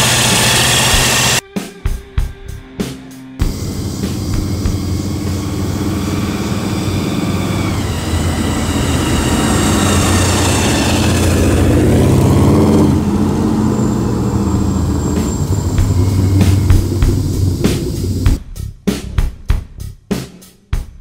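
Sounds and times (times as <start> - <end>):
car driving past: 3.4 - 18.4.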